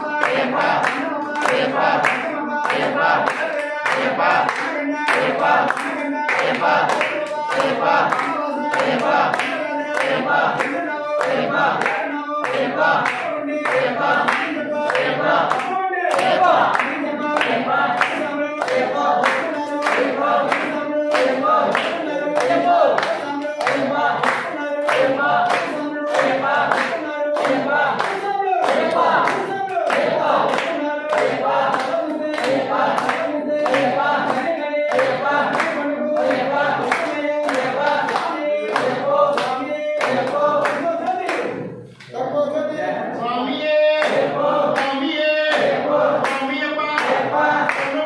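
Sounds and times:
hand clapping in time: 0.0s - 42.2s, 44.0s - 48.0s
men chanting in unison: 0.0s - 48.0s.

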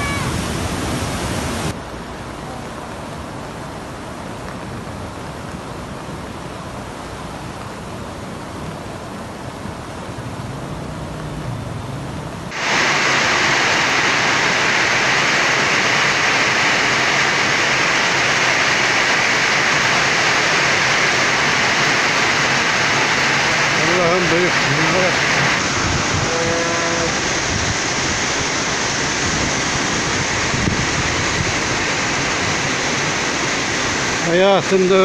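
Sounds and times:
floodwater rushing: 0.0s - 35.0s.

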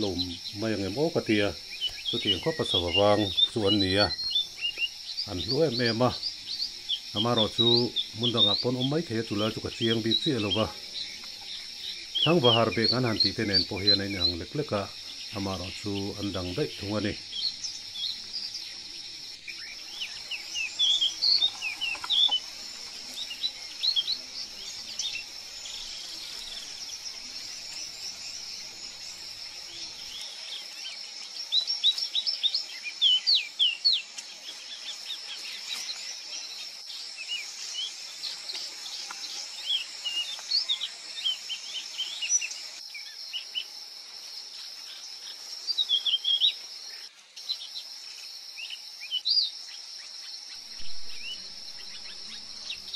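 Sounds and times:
high bird chirps: 0.0s - 30.4s, 50.6s - 52.9s
high-pitched insect drone: 0.0s - 52.9s.

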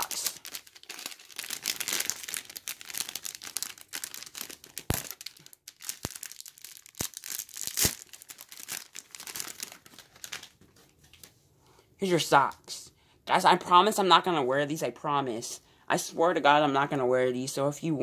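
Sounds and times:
plastic bag crinkling: 0.0s - 11.3s.

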